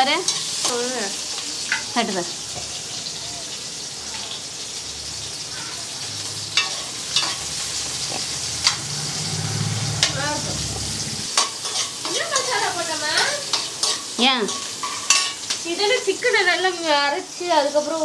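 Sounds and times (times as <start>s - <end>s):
vegetables sizzling in a pan: 0.0s - 18.0s
spoon scraping against pan: 0.1s - 3.1s, 6.3s - 10.2s, 11.2s - 15.7s.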